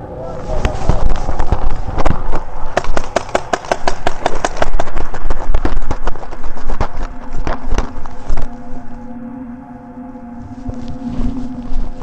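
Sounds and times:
paintball marker firing rapidly: 0:01.5 - 0:07.6.

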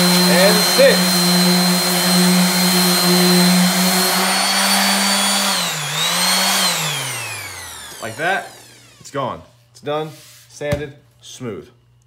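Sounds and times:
orbital sander on wood: 0:00.0 - 0:09.2.

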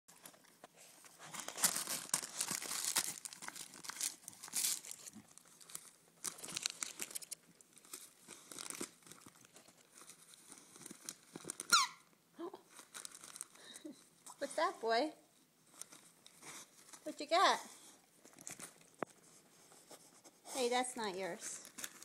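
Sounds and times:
dog tearing wrapping paper: 0:01.1 - 0:11.8, 0:12.7 - 0:13.7, 0:21.5 - 0:22.0.

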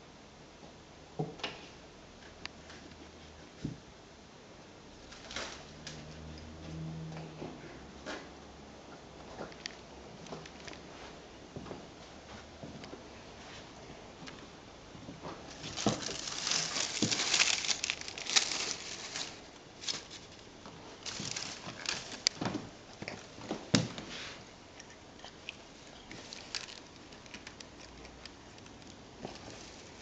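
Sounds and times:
foil crinkling: 0:15.5 - 0:22.6, 0:25.8 - 0:30.0
cat biting dry stalks: 0:15.5 - 0:23.3.

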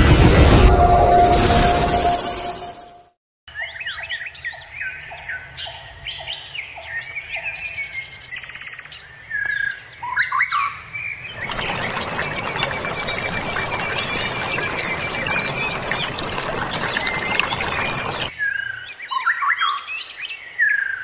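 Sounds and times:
rocky stream rushing: 0:11.3 - 0:18.3.

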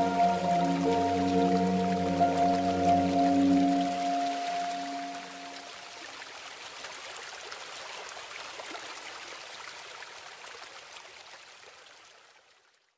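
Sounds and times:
waterfall rushing over rocks: 0:00.0 - 0:08.7.

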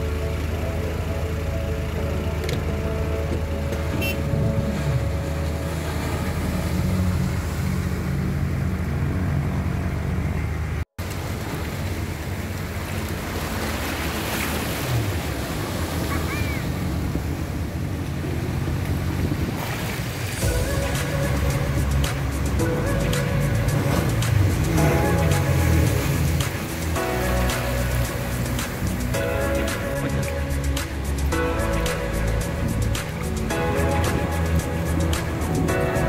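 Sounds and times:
boat engines droning: 0:00.0 - 0:36.0
surf washing onto beach: 0:11.0 - 0:36.0
wind buffeting microphone: 0:14.9 - 0:27.0.

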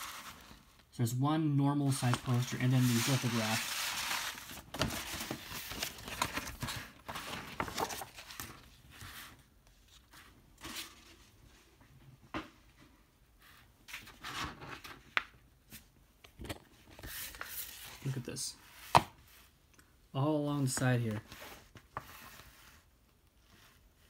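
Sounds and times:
paper rustling and crinkling: 0:00.0 - 0:00.9, 0:01.9 - 0:11.4.

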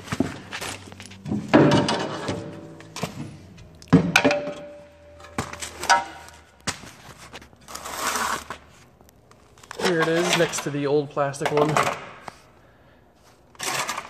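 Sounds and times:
metal plate knocking and clanking: 0:01.4 - 0:02.7, 0:04.0 - 0:04.8.

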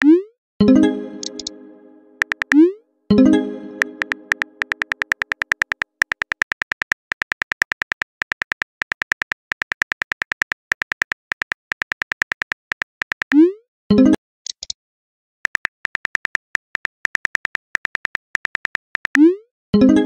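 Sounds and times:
phone keyboard clicks: 0:01.2 - 0:01.5, 0:02.2 - 0:02.6, 0:03.8 - 0:13.4.

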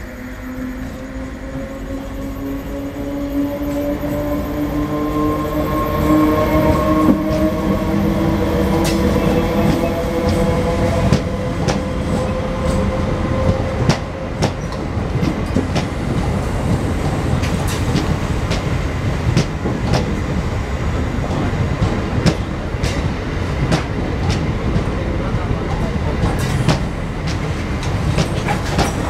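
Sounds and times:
train wheels rumbling on rail: 0:00.0 - 0:29.0
wheels clacking over rail joints: 0:25.7 - 0:29.0.

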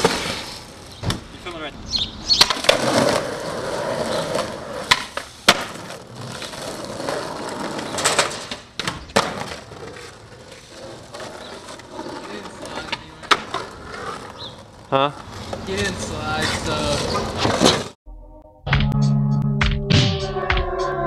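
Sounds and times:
skateboard wheels rolling on pavement: 0:00.0 - 0:18.0
skateboard clacking on ground: 0:02.4 - 0:17.9.

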